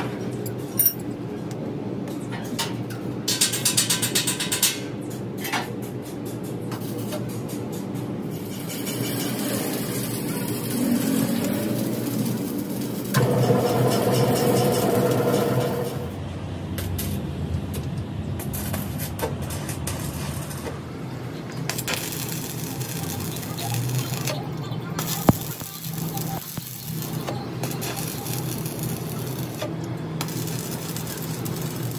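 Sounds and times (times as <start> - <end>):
machinery hum: 6.3 - 31.9
loud machine noise: 8.3 - 16.2, 21.6 - 31.9.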